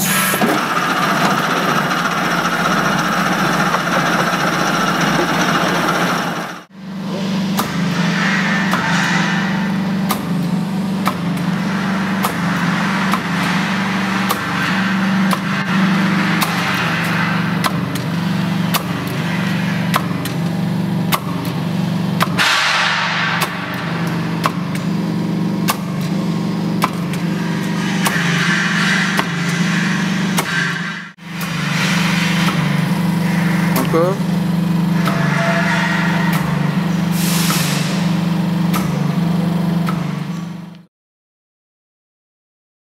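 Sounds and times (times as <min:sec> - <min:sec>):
band saw humming: 0:00.0 - 0:06.7.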